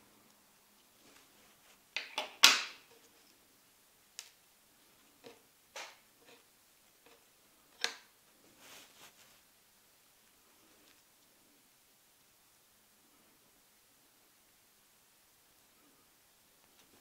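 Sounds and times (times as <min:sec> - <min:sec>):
scratchy rustle: 0:08.4 - 0:09.5
thread rustling: 0:08.4 - 0:09.5.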